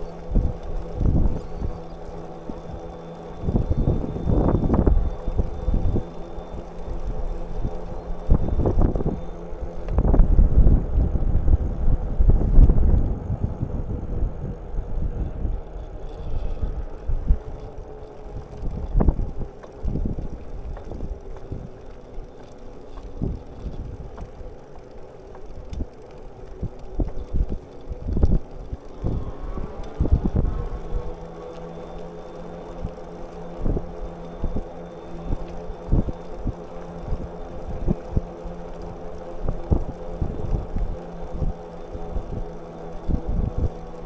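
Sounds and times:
bicycle clicks and rattles: 0.0s - 44.0s
tyres rumbling on pavement: 0.0s - 44.0s
wind buffeting microphone: 0.0s - 44.0s.

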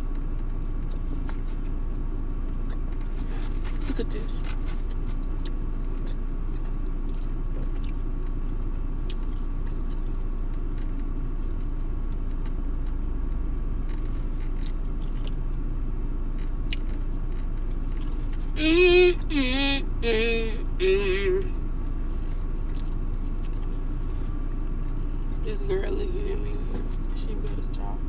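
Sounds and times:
person chewing: 0.0s - 15.5s, 16.4s - 18.6s, 21.8s - 25.4s
car engine rumble inside cabin: 0.0s - 28.0s.

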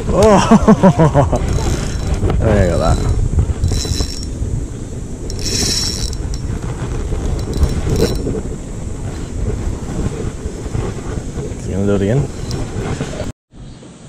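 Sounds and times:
handling noise rumbling: 0.0s - 13.3s
fishing reel cranking: 1.3s - 4.4s, 5.3s - 6.6s, 7.3s - 8.3s.

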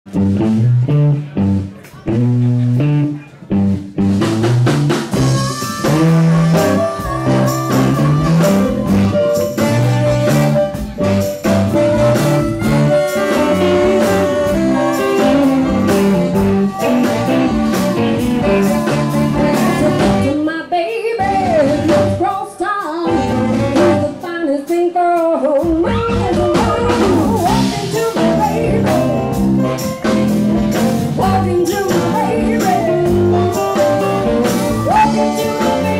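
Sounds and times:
live blues band: 0.1s - 35.9s
harmonica lead: 5.1s - 20.4s, 26.5s - 35.9s.

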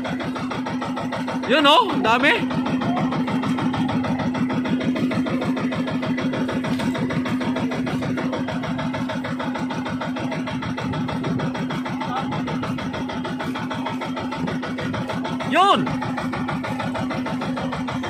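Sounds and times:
boat engine running: 0.0s - 18.0s.

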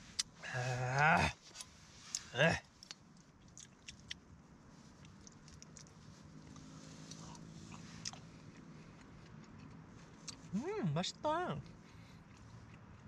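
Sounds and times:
quiet chewing: 0.1s - 10.6s, 11.6s - 13.0s.

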